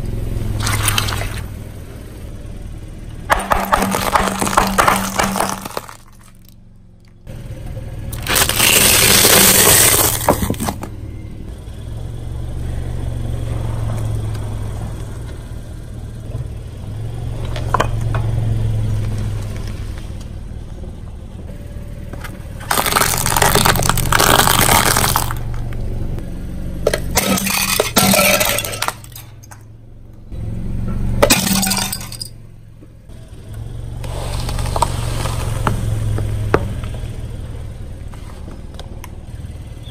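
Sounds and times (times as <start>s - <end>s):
car creeping low hum: 0.0s - 39.9s
glass bulbs crunching under tyre: 3.3s - 6.6s, 8.1s - 10.9s, 22.2s - 25.7s, 26.8s - 29.6s, 31.2s - 32.3s.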